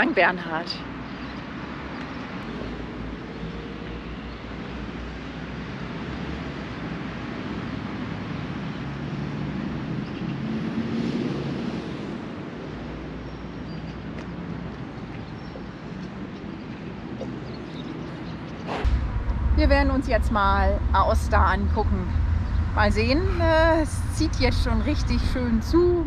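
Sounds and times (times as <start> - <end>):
road traffic rumble: 0.0 - 26.0
passing vehicle engine hum: 15.8 - 26.0.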